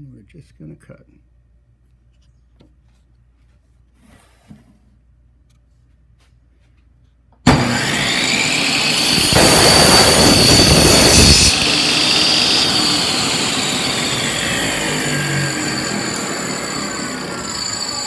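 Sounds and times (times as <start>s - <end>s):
saw blade cutting wood: 7.5s - 18.0s
table saw motor whine: 7.5s - 18.0s.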